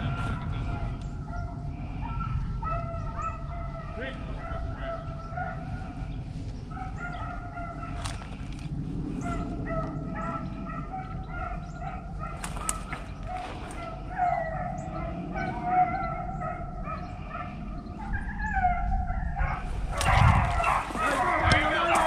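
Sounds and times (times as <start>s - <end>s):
beagles baying: 0.0s - 22.0s
low wind rumble: 0.0s - 22.0s.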